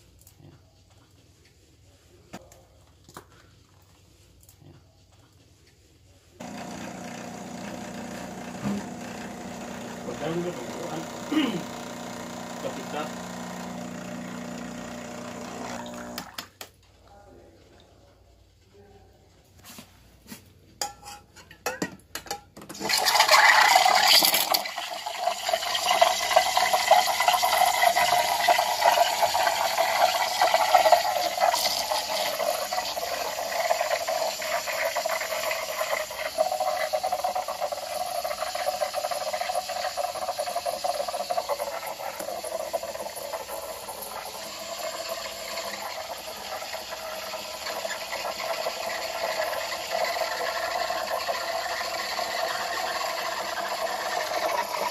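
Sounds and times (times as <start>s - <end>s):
steam wand hissing frothing milk: 6.4s - 16.3s, 22.8s - 54.9s.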